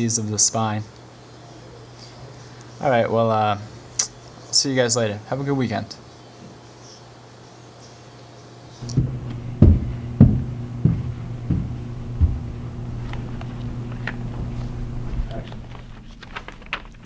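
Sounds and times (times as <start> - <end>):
low thuds: 8.8 - 15.7
steady low hum: 8.8 - 17.0.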